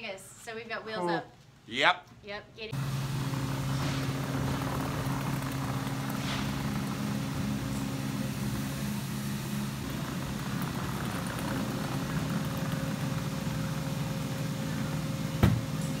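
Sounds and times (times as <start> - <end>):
steady low hum: 2.4 - 16.0
toy wheels rolling on concrete: 3.4 - 8.2, 9.5 - 15.1.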